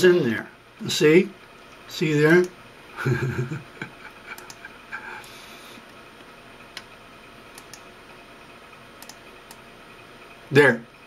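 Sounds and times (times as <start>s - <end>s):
faint room hum: 0.0s - 11.0s
computer mouse clicking: 4.3s - 4.7s, 5.8s - 7.9s, 9.0s - 9.6s.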